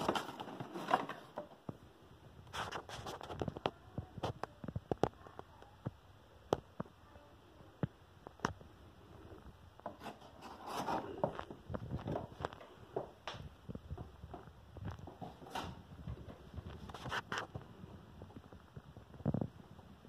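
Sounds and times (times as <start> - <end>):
cardboard box handling: 0.0 - 1.5, 9.8 - 12.6
scraping rustle: 0.0 - 1.5, 2.5 - 4.4, 9.8 - 12.6, 15.0 - 17.7.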